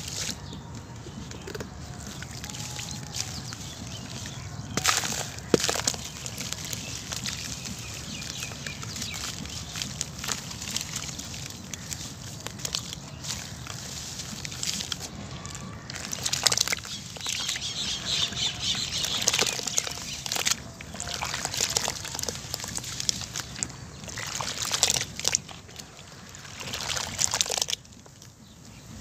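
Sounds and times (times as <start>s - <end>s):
hands squelching wet cement: 0.0s - 28.3s
water sloshing in basin: 1.1s - 28.3s.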